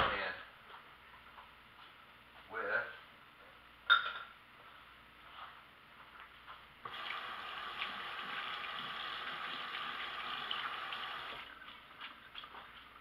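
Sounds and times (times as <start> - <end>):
water running: 6.8 - 13.0.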